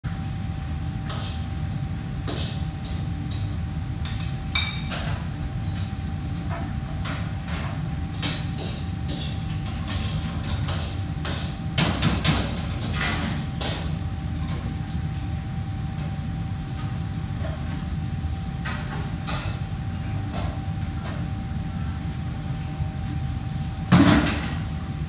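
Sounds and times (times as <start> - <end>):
steady low hum: 0.1 - 25.0
utensils and dishes clinking: 2.2 - 14.7.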